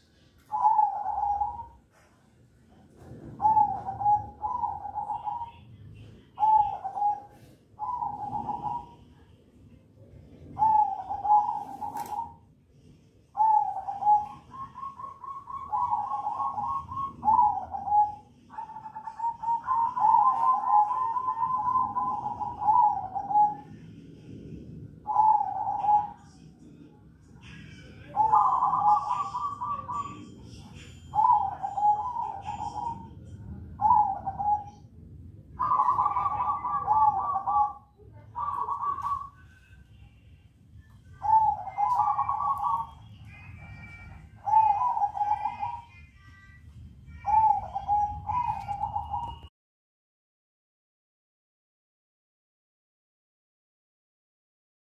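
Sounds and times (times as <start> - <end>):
dove cooing: 0.0 - 2.0, 3.0 - 9.2, 10.3 - 12.4, 13.3 - 26.3, 27.4 - 34.9, 35.5 - 39.6, 41.1 - 46.0, 47.2 - 49.5.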